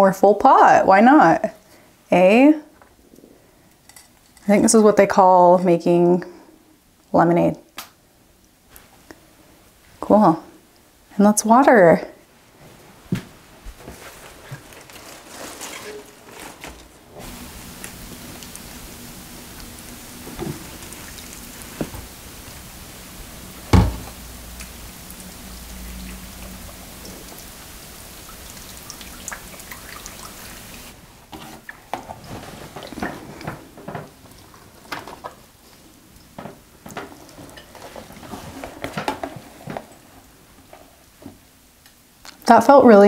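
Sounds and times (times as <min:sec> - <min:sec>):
water dripping: 0:17.2 - 0:31.0
water pouring onto soil: 0:24.2 - 0:30.9.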